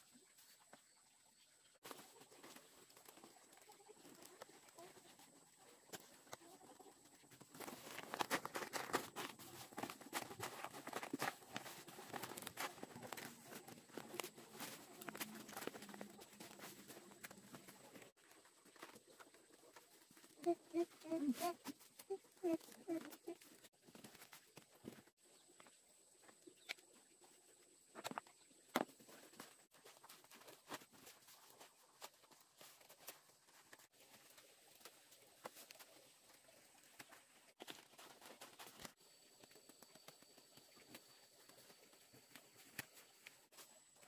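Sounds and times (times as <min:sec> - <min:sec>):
soft crackles and taps on tarp: 0:01.8 - 0:20.6, 0:27.9 - 0:43.7
leaves rustling and crinkling: 0:01.8 - 0:25.4, 0:27.9 - 0:44.0.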